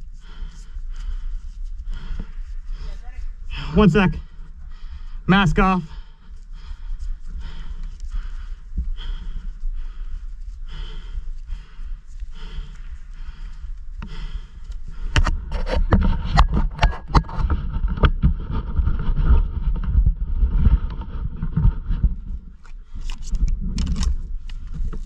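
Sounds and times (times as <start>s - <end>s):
wind rumble on microphone: 6.2s - 25.0s.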